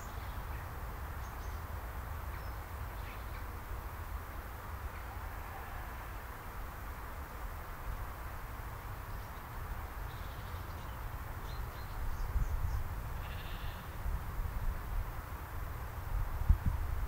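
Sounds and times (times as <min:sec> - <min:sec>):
faint sheep bleating: 0:05.1 - 0:06.3, 0:13.2 - 0:14.0
wind rumble on microphone: 0:11.1 - 0:17.0.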